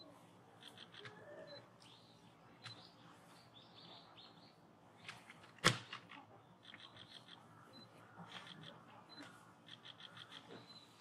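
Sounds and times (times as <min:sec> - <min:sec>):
faint high chirping: 0:00.0 - 0:04.7, 0:06.5 - 0:11.0.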